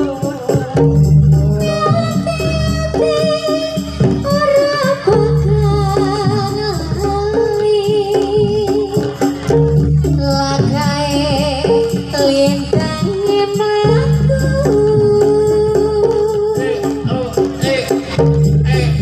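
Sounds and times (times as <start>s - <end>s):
drumming: 0.0s - 19.0s
gamelan music: 0.0s - 19.0s
steady low bass: 0.6s - 2.9s, 9.4s - 11.4s, 17.0s - 19.0s.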